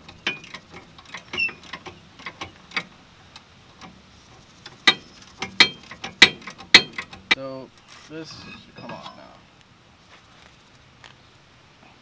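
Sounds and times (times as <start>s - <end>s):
metal tools clicking and clinking: 8.3s - 9.3s.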